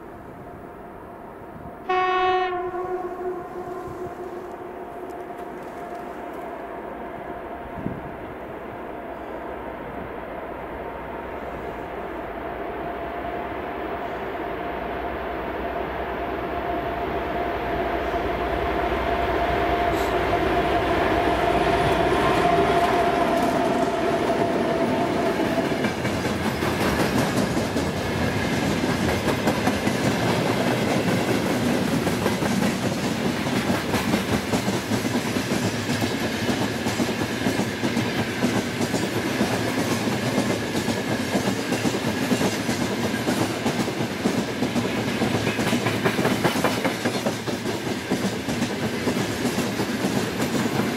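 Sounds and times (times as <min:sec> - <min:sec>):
diesel locomotive engine hum: 0:00.0 - 0:50.9
train wheels clattering on rails: 0:21.6 - 0:50.9.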